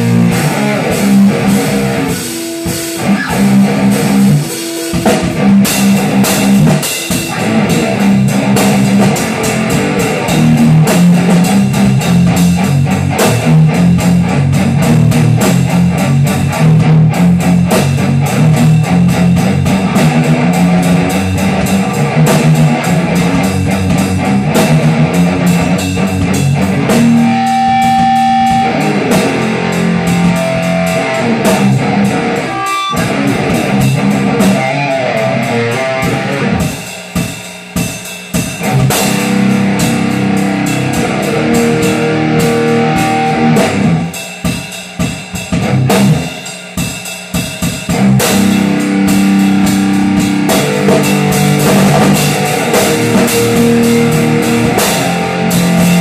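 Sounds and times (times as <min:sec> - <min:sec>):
electric guitar chords: 0:00.0 - 0:46.4, 0:47.9 - 0:56.0
drum kit: 0:00.0 - 0:56.0.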